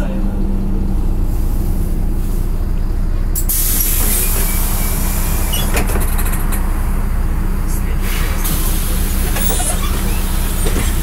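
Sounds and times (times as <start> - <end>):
bus diesel engine humming: 0.0 - 11.0
pneumatic air hiss: 3.4 - 5.8.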